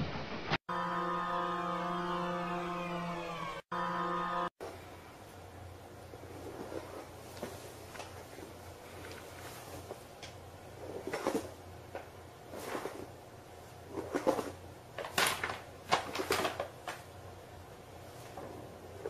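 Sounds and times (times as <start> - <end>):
knocks and scrapes: 6.1 - 13.2.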